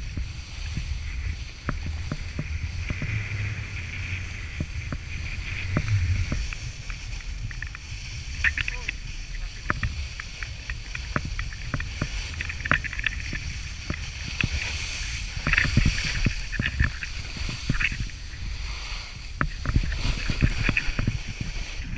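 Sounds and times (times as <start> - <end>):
snowboard scraping on snow: 0.0 - 21.9
small knocks and clicks: 4.5 - 18.2, 19.4 - 21.2.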